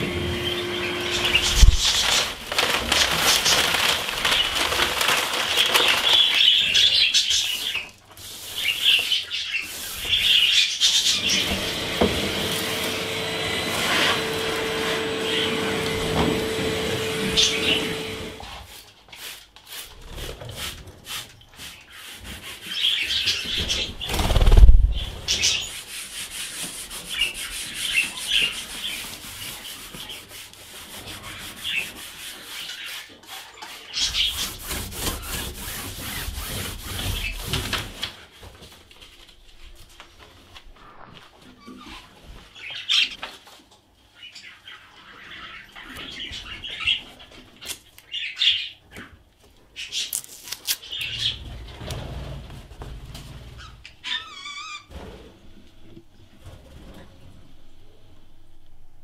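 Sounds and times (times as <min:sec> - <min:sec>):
budgies chirping: 0:00.0 - 0:02.3, 0:05.6 - 0:07.9, 0:08.5 - 0:13.5, 0:15.2 - 0:18.4, 0:44.2 - 0:47.2
rubbing scrubbing noise: 0:00.9 - 0:38.4.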